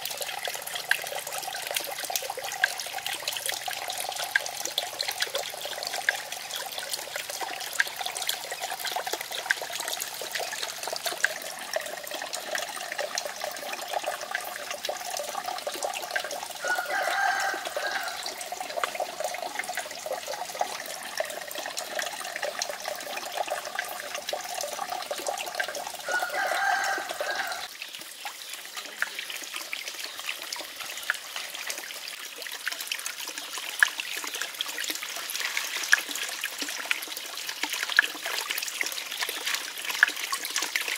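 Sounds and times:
water trickling: 0:00.0 - 0:40.9
calls: 0:16.6 - 0:18.4, 0:26.0 - 0:27.7.

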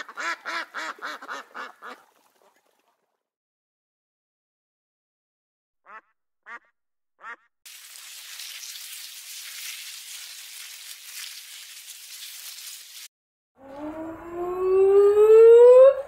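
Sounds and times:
duck quacks: 0:00.0 - 0:02.1, 0:05.8 - 0:07.5.

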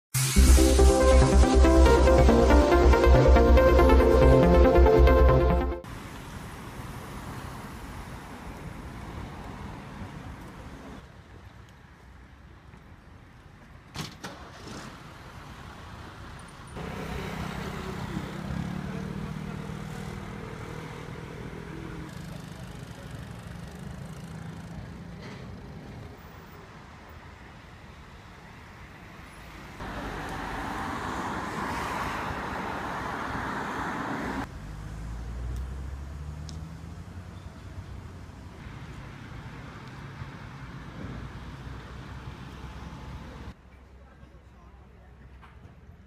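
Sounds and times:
car passing close: 0:14.2 - 0:22.6, 0:29.2 - 0:43.6.

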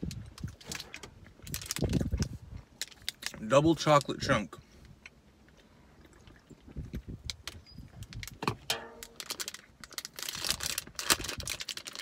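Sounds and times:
plastic wrapper crinkling: 0:00.0 - 0:04.1, 0:08.1 - 0:12.0.

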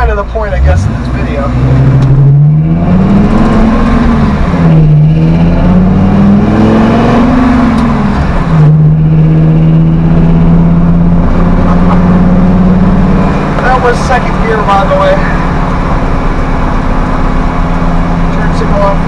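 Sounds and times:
engine revving through gears: 0:00.0 - 0:19.0.

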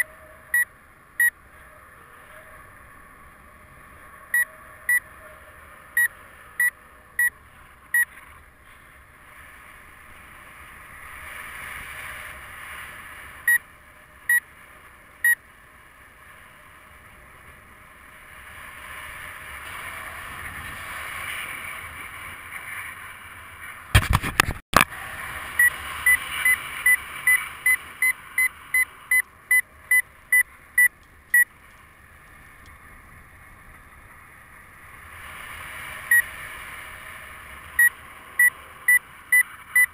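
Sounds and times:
variometer beeping: 0:00.0 - 0:01.4, 0:04.3 - 0:05.2, 0:06.0 - 0:08.1, 0:25.6 - 0:31.5, 0:37.8 - 0:39.9.

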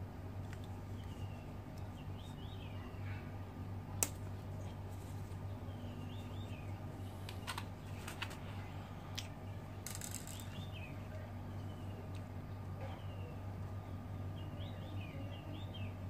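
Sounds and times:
steady low hum: 0:00.0 - 0:16.0
bird chirping: 0:00.9 - 0:03.2, 0:05.5 - 0:06.8.

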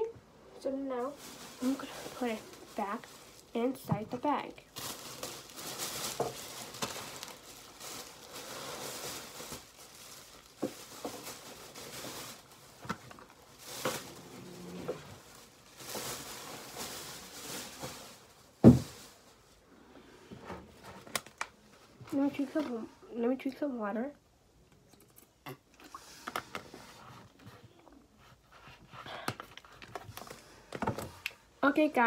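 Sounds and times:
shopping bag rustling: 0:00.9 - 0:19.6.

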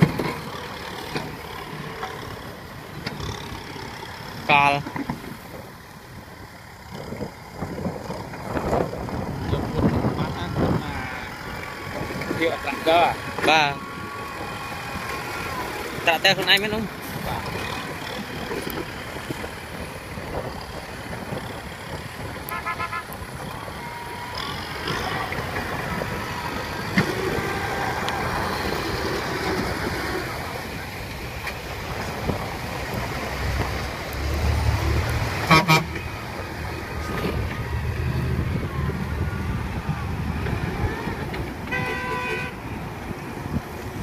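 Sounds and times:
passing road traffic: 0:00.0 - 0:44.0
tractor diesel engine working: 0:00.0 - 0:44.0
vehicle horn toots: 0:22.5 - 0:23.2, 0:35.4 - 0:36.1, 0:41.7 - 0:42.6.

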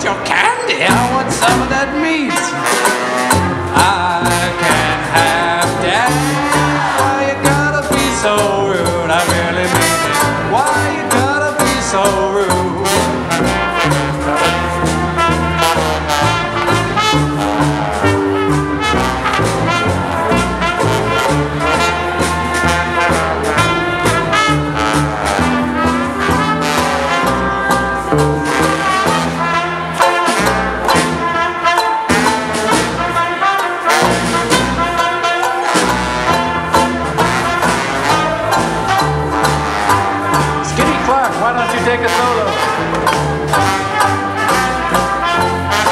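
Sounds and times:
double bass: 0:00.0 - 0:45.9
trombone: 0:00.0 - 0:45.9
trumpet: 0:00.0 - 0:45.9
strummed ukulele: 0:00.8 - 0:14.4, 0:30.0 - 0:45.9
snare drum: 0:12.8 - 0:45.9.

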